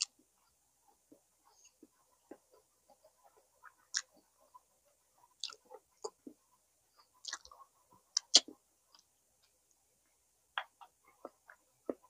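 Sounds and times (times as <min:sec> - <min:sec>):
wet chewing and lip-smacking: 0:05.4 - 0:06.4, 0:07.2 - 0:09.1.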